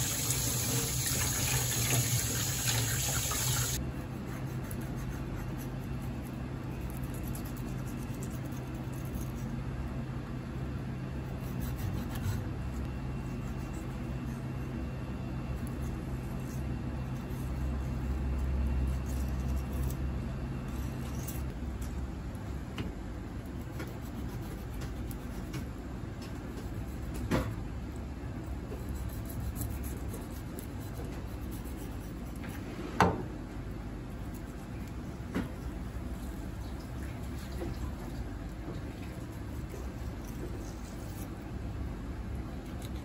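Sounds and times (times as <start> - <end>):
low machine hum: 0.0 - 43.0
knife scraping fish: 11.3 - 14.6, 28.7 - 32.6.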